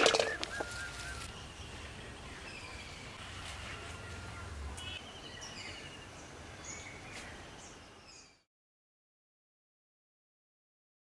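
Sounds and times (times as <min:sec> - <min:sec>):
birds chirping and calling: 0:00.0 - 0:08.4
outdoor background noise: 0:00.0 - 0:08.5.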